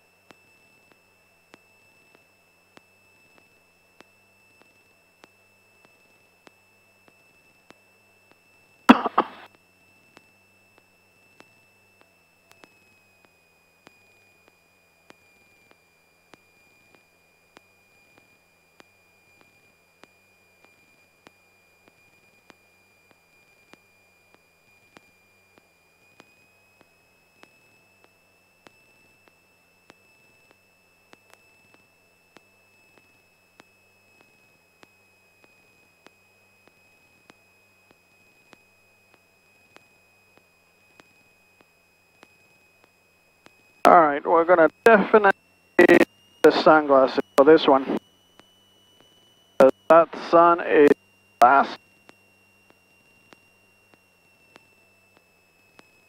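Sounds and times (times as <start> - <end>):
high-pitched electrical whine: 0.0 - 56.0
faint ticks: 0.3 - 8.4, 9.0 - 43.7, 51.4 - 56.0
person coughing into microphone: 8.9 - 9.5.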